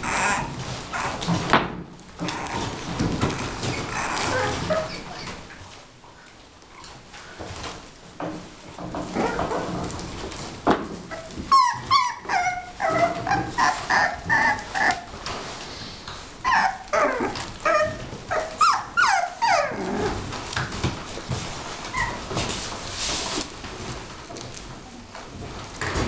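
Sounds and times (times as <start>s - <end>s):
puppies yelping and whining: 0.0s - 1.4s, 2.2s - 5.4s, 11.1s - 15.5s, 16.4s - 20.4s, 21.8s - 22.4s.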